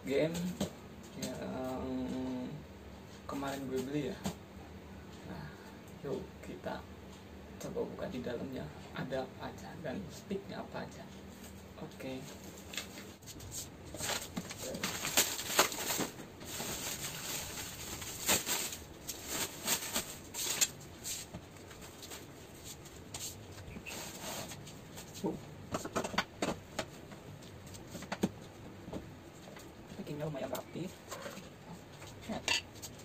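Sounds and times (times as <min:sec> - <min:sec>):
plastic packaging rustling: 0:12.4 - 0:25.0.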